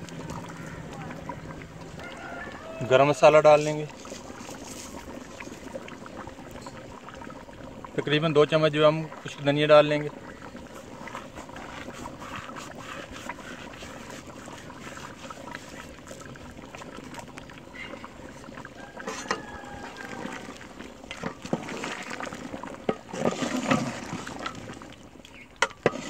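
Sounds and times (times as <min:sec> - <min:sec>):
gravy sloshing in pot: 0:00.0 - 0:26.0
ladle knocking against pot: 0:19.1 - 0:19.4.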